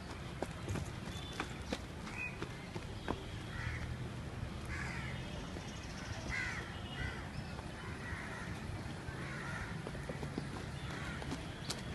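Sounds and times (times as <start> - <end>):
harsh bird calls: 4.7 - 11.9.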